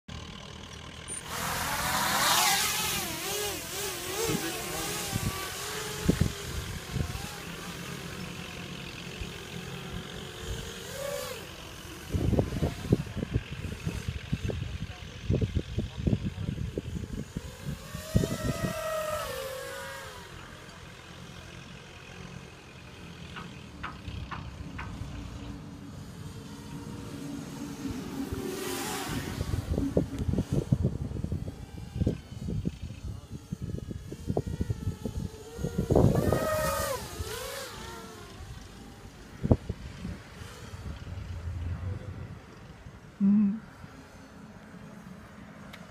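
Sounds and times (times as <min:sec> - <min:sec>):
quadcopter motors whining: 0:00.1 - 0:45.9
wind buffeting on microphone: 0:04.1 - 0:07.3, 0:12.0 - 0:19.5, 0:27.7 - 0:37.6, 0:39.3 - 0:43.2.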